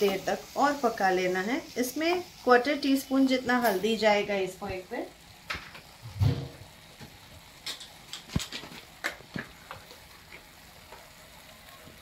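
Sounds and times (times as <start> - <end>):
faint frying sizzle: 0.0 - 12.0
low thump: 6.2 - 6.6.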